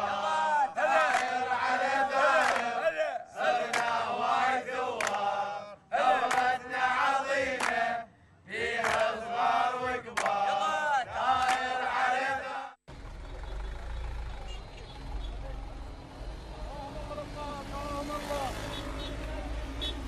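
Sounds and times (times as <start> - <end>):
men chanting in unison: 0.0 - 12.8, 16.3 - 20.0
hand clapping: 1.0 - 1.5, 2.4 - 2.7, 3.7 - 4.1, 5.0 - 5.3, 6.2 - 6.6, 7.5 - 7.8, 8.8 - 9.2, 10.1 - 10.4, 11.4 - 11.8.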